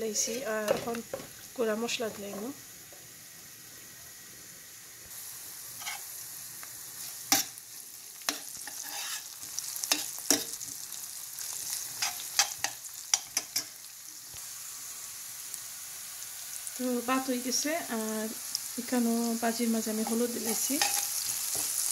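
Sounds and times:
spices sizzling in a pan: 0.0 - 21.9
spoon scraping and knocking pan: 0.2 - 1.4, 5.8 - 6.1, 8.3 - 10.8, 12.0 - 13.8, 20.0 - 21.9.

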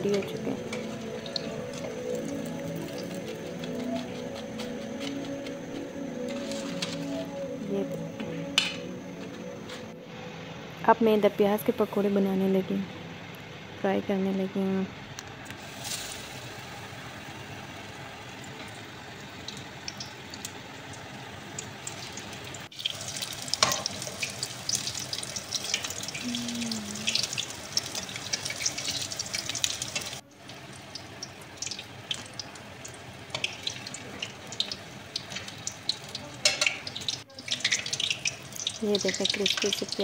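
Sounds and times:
onion rings deep-frying in oil: 0.0 - 7.3, 15.6 - 40.0.

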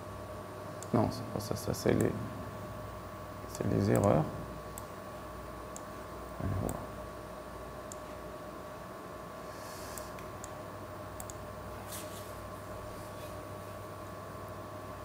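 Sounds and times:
faint electrical hum: 0.0 - 15.0
computer mouse clicks: 3.5 - 4.9, 11.2 - 11.4.

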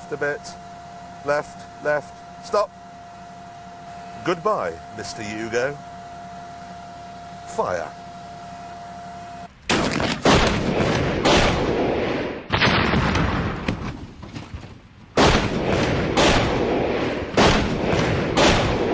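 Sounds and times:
tank gun firing: 9.6 - 18.9
explosion with rumble: 9.7 - 14.0, 15.2 - 18.9.

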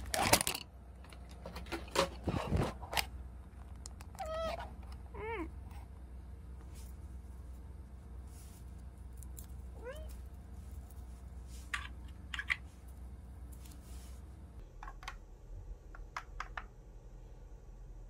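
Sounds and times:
cat meowing: 4.2 - 5.6, 9.8 - 10.2.

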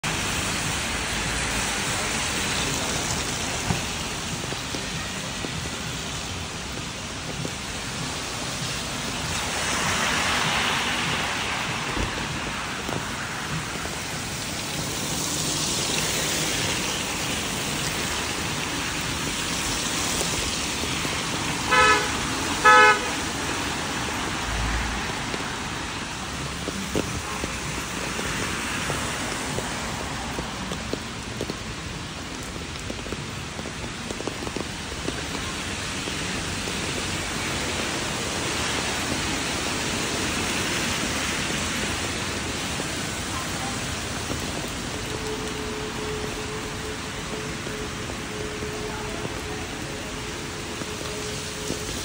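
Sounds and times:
rain hiss: 0.0 - 52.0
vehicles swishing on wet road: 0.0 - 52.0
vehicle horn beeps: 21.7 - 23.2, 45.0 - 50.4.

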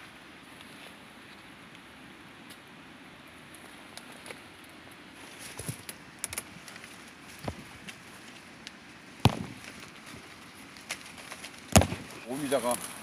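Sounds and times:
rustling and snapping twigs: 3.5 - 13.0.

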